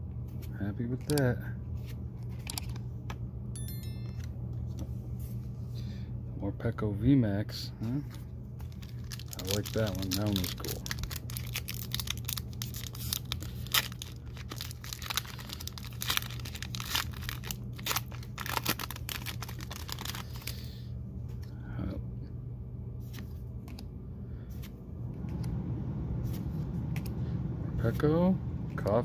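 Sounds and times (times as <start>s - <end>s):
steady low hum: 0.0s - 29.0s
foil wrapper tearing and crinkling: 8.7s - 20.8s.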